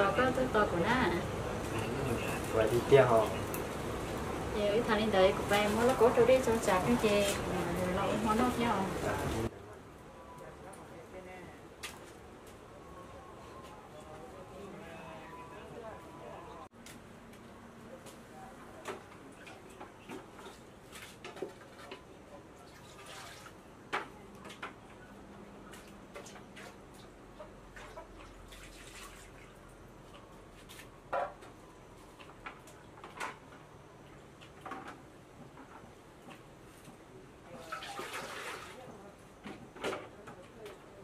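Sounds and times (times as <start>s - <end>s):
water dripping into buckets: 25.6s - 34.8s, 37.5s - 38.8s.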